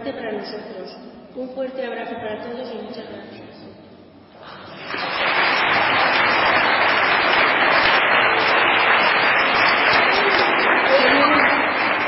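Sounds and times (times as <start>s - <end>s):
congregation applauding: 4.4s - 12.0s.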